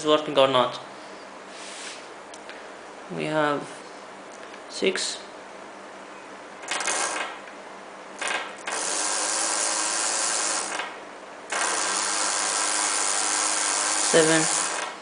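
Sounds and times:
small electric motor whirring: 6.6s - 7.3s, 8.2s - 10.9s, 11.5s - 15.0s.

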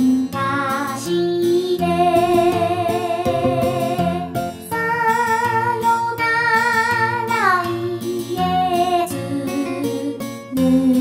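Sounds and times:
karaoke backing track: 0.0s - 11.0s
woman singing a ballad: 0.0s - 11.0s.

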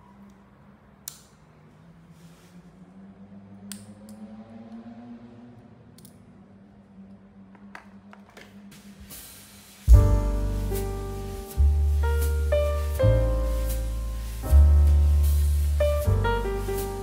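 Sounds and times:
low hum: 9.9s - 17.0s.

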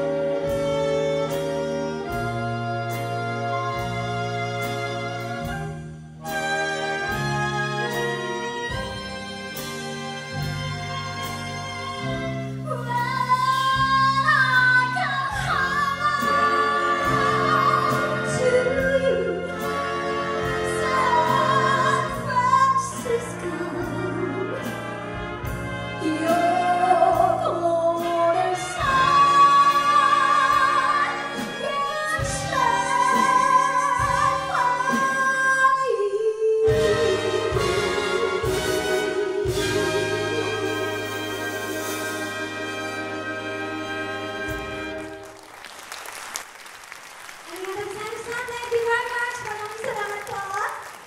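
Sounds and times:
big band playing: 0.0s - 51.0s
woman singing jazz with vibrato: 10.8s - 42.2s.

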